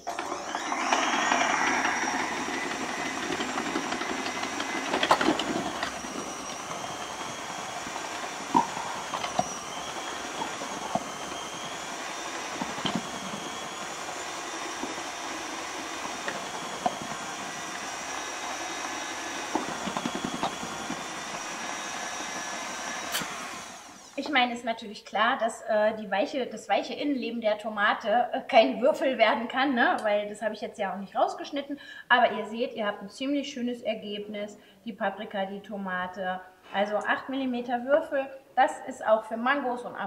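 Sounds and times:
food processor running with whine: 0:00.0 - 0:24.2.

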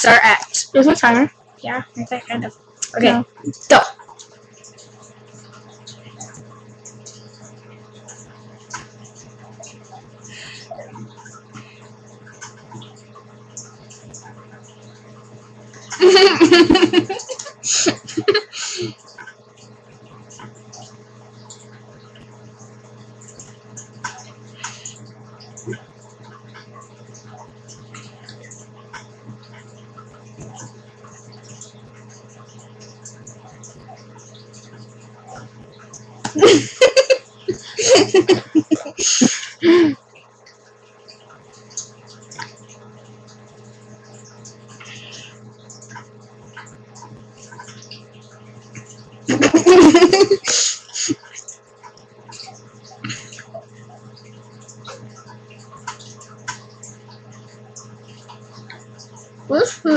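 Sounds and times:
aquarium filter humming: 0:00.0 - 0:59.9
water drips: 0:00.0 - 0:59.9
water trickling: 0:00.0 - 0:59.9
muffled giggling and snorts: 0:16.0 - 0:18.9, 0:36.4 - 0:39.9, 0:49.3 - 0:51.4.

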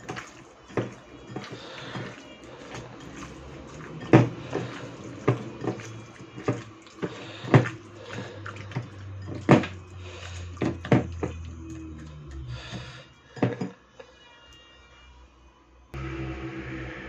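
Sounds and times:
wet squelching of chicken: 0:00.0 - 0:13.1.

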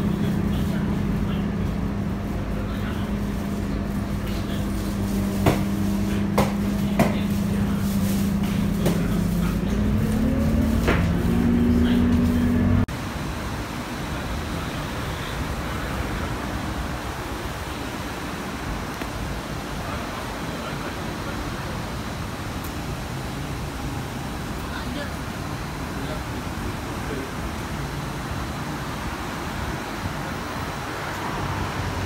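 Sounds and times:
bus engine hum: 0:00.0 - 0:32.0
steady rushing noise: 0:00.0 - 0:32.0
knocks and rattles in bus cabin: 0:04.0 - 0:09.5, 0:10.6 - 0:12.2.

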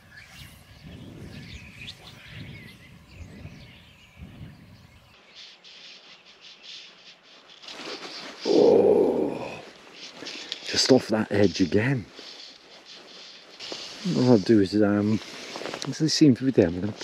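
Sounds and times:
wind rumble on microphone: 0:00.0 - 0:05.2
birds chirping: 0:00.0 - 0:17.0.

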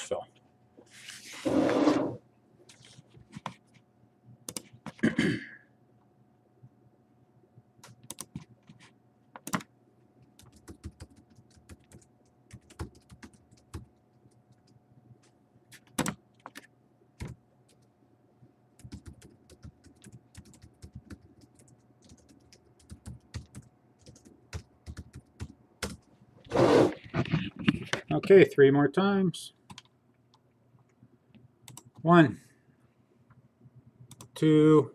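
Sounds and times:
faint steady hum: 0:00.0 - 0:34.9
keyboard typing clicks: 0:04.5 - 0:04.8, 0:07.8 - 0:08.5, 0:09.4 - 0:09.7, 0:15.8 - 0:17.9, 0:31.7 - 0:32.0, 0:34.1 - 0:34.4.

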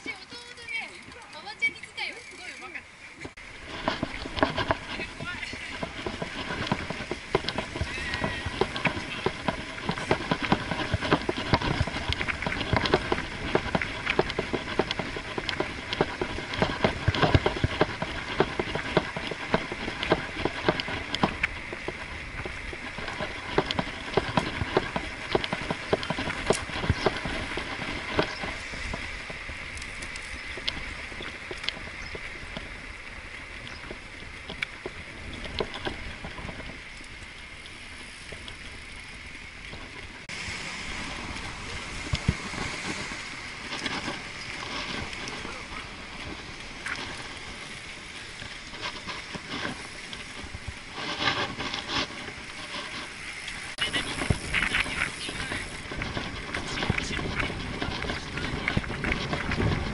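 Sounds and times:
steady rolling hiss: 0:00.0 - 0:59.9
bicycle rattling clicks and knocks: 0:00.1 - 0:59.9.

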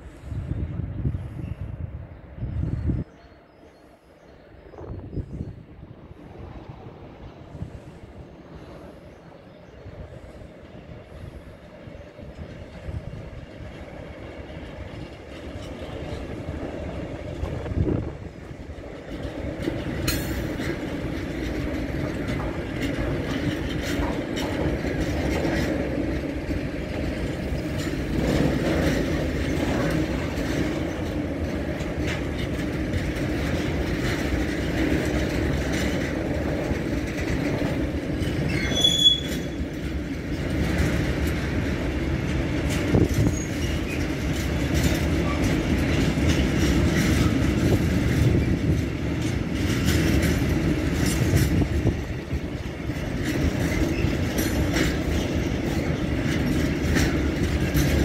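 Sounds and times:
train wheels rumbling on rails: 0:00.0 - 0:58.0
high wheel squeal: 0:38.2 - 0:39.6.

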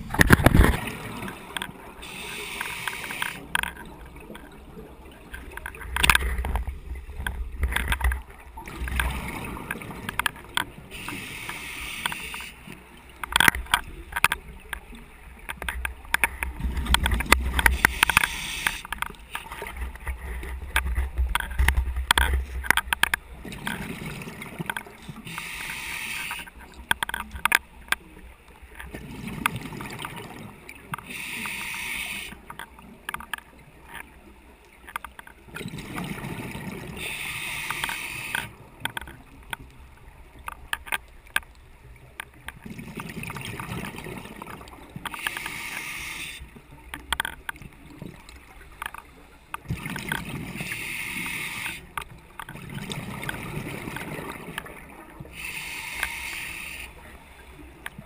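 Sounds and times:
diver breathing through regulator: 0:25.2 - 0:26.5, 0:31.0 - 0:32.4, 0:45.1 - 0:46.5, 0:50.5 - 0:51.9, 0:55.3 - 0:57.0.

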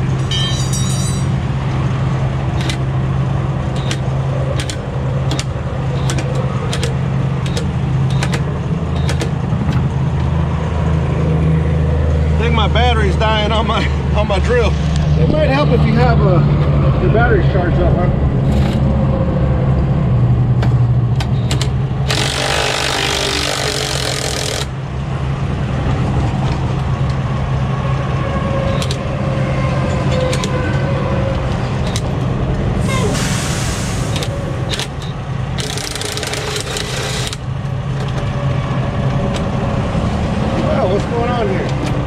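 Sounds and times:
cordless drill on bolt: 0:22.1 - 0:24.7, 0:35.6 - 0:37.4.

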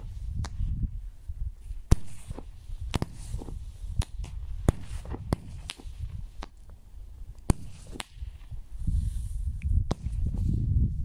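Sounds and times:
fireworks cracking: 0:01.9 - 0:06.8, 0:07.4 - 0:08.6.

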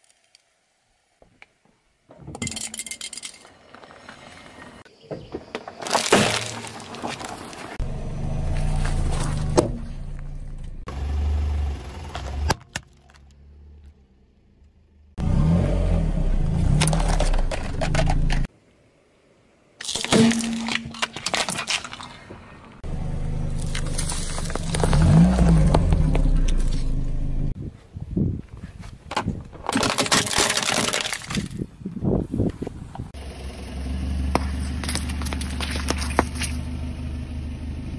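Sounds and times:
car tyre crushing plastic toys: 0:05.6 - 0:07.8, 0:16.7 - 0:18.5, 0:19.8 - 0:22.8, 0:23.5 - 0:26.8, 0:29.1 - 0:31.7, 0:34.3 - 0:36.6
car engine low rumble: 0:07.2 - 0:18.5, 0:22.8 - 0:27.6, 0:32.7 - 0:37.9.

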